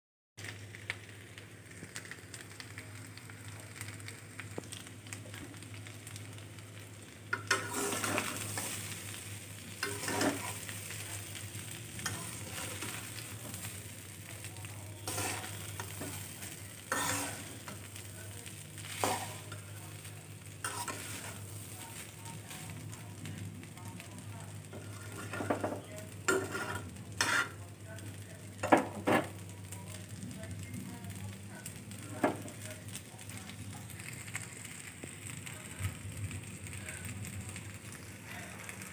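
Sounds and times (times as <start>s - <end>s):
rice sizzling in a pan: 0.4s - 38.9s
spatula scraping a pan: 7.4s - 9.1s, 9.8s - 11.0s, 12.0s - 13.7s, 15.0s - 18.0s, 18.8s - 19.8s, 20.6s - 21.6s, 24.7s - 27.6s.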